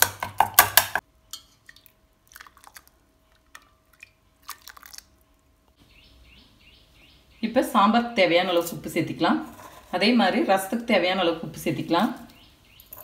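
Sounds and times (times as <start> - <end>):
wet squishing: 1.7 - 5.4
steel ladle scraping a pot: 9.4 - 10.4.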